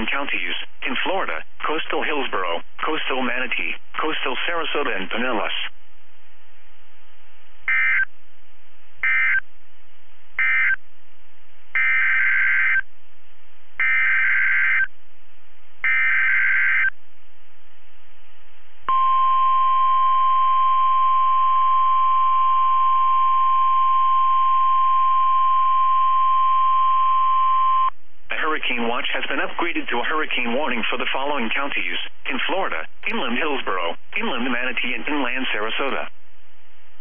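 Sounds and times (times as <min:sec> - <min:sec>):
steady warning alarm tone: 0:07.7 - 0:08.1, 0:09.0 - 0:09.4, 0:10.4 - 0:10.8, 0:11.8 - 0:12.8, 0:13.8 - 0:14.9, 0:15.8 - 0:16.9, 0:18.9 - 0:27.9.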